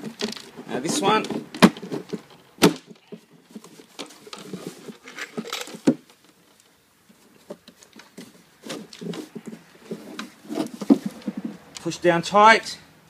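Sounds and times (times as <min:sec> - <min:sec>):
plastic parts clicking and knocking: 0:00.0 - 0:06.8.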